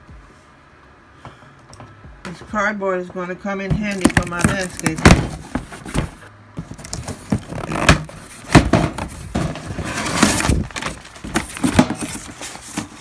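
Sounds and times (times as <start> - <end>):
cardboard packaging rustling: 3.9 - 13.0.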